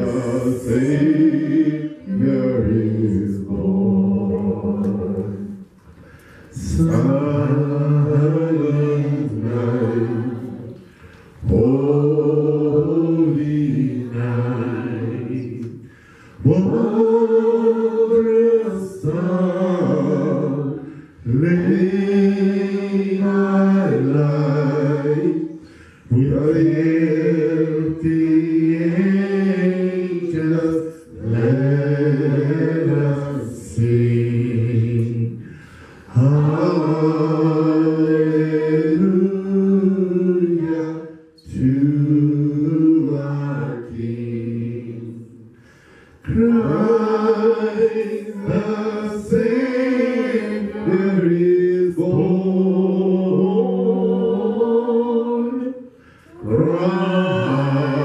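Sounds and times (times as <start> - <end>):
voices singing along: 0.0 - 58.0
man singing into a microphone: 46.2 - 53.9, 56.4 - 58.0.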